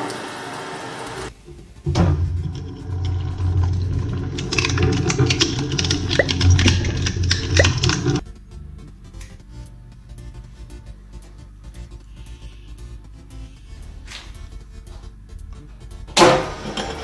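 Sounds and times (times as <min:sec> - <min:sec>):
shredder motor hum: 0:16.2 - 0:17.0.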